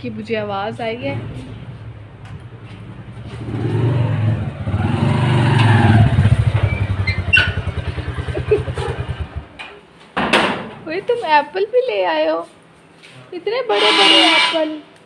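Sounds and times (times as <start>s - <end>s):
motorcycle engine running: 2.7s - 9.6s.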